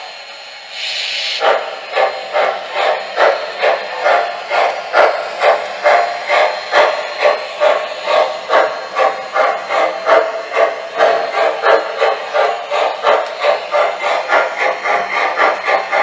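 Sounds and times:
model locomotive steam chuffs: 0.0 - 16.0.

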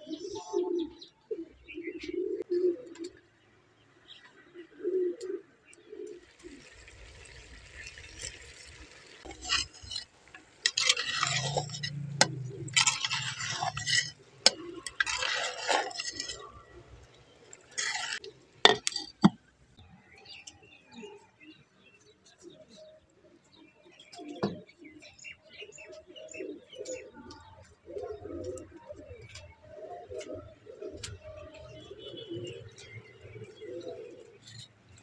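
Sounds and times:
wooden spatula scraping in pot: 6.6 - 19.4.

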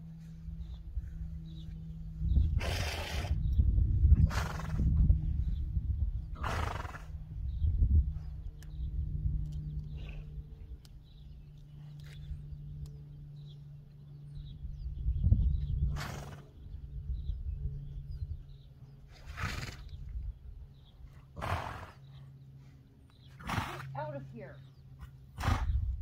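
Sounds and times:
low rumble: 0.0 - 21.4, 24.0 - 26.0
steady low hum: 0.0 - 26.0
horse snorting: 2.6 - 3.4, 4.2 - 4.9, 6.4 - 7.2, 19.1 - 20.0, 21.3 - 22.1, 23.4 - 24.0, 25.3 - 25.8.

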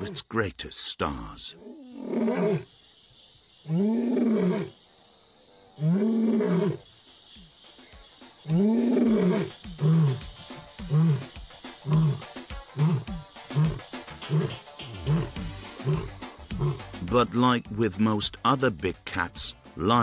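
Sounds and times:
lion grunts: 1.6 - 2.7, 3.6 - 4.8, 5.5 - 6.8, 8.4 - 17.1
lion roaring: 1.6 - 2.7, 3.6 - 4.8, 5.5 - 6.8, 8.5 - 17.0.

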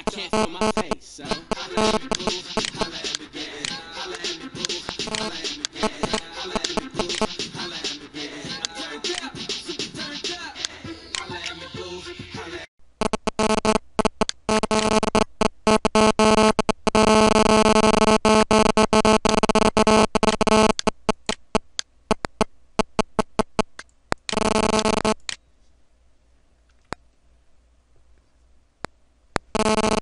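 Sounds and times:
clicks: 0.0 - 7.4, 18.6 - 25.4
stuttering electronic buzz: 0.0 - 8.0, 13.0 - 23.7, 24.3 - 25.2, 29.5 - 30.0.

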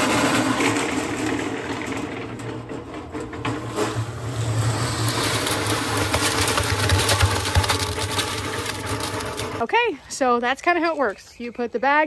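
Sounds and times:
cement mixer churning concrete: 0.0 - 9.9.

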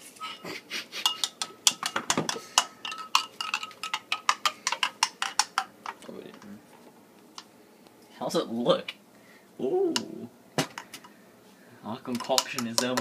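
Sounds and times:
metal spoon clinking against glass: 1.0 - 5.7, 12.1 - 13.0.

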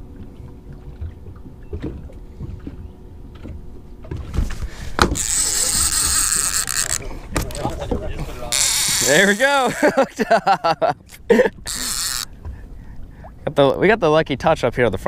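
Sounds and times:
fishing reel drag buzzing: 4.7 - 7.8, 8.4 - 10.0, 11.6 - 12.4.

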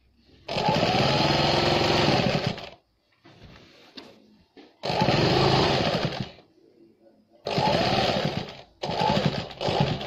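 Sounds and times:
sewing machine stitching: 0.4 - 2.8, 4.8 - 6.4, 7.4 - 10.0
fabric rustling: 3.0 - 4.4.

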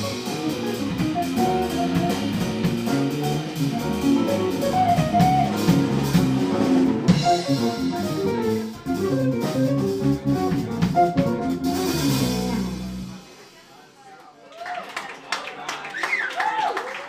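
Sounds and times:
electric guitar: 0.0 - 13.2
electric bass: 0.0 - 13.3
drum kit with cymbals: 0.0 - 14.1.

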